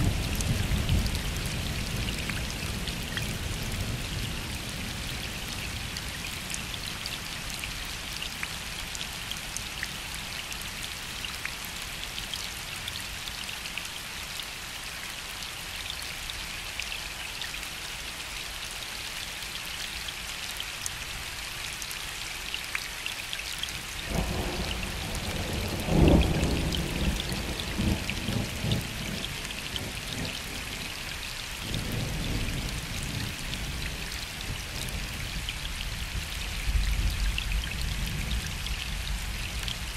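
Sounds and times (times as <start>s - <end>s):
rain falling on lake: 0.0s - 39.9s
distant thunder rumbling: 24.1s - 30.6s.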